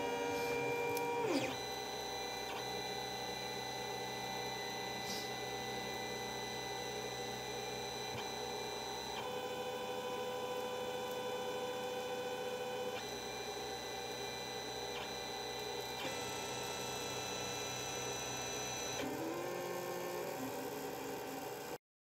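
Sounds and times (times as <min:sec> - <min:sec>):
stepper motors whining: 0:00.0 - 0:09.2.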